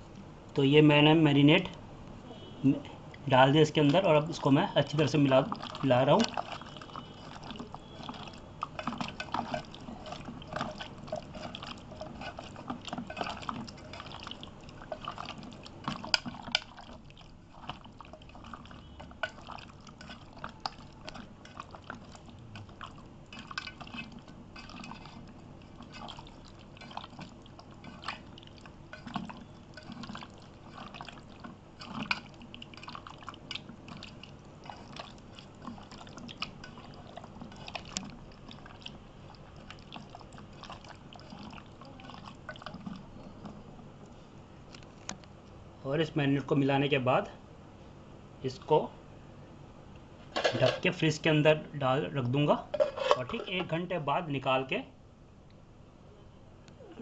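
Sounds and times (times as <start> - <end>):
hand kneading wet chicken: 3.3 - 43.9.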